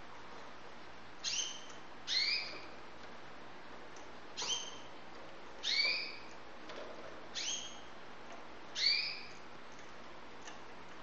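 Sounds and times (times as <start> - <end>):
canary call notes: 1.2 - 2.7, 5.6 - 6.3, 8.8 - 9.4.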